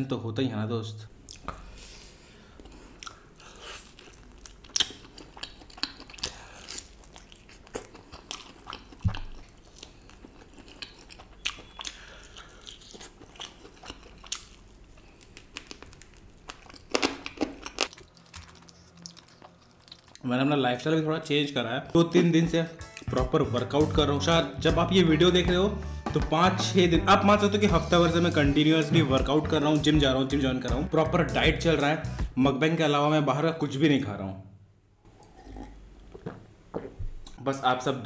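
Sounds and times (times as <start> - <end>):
wet chewing: 2.6 - 20.3
crunching fried chicken: 2.7 - 20.3.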